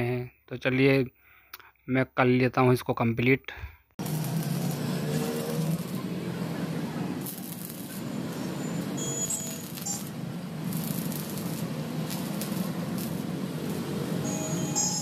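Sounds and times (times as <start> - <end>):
welding arc crackling: 4.0 - 15.0.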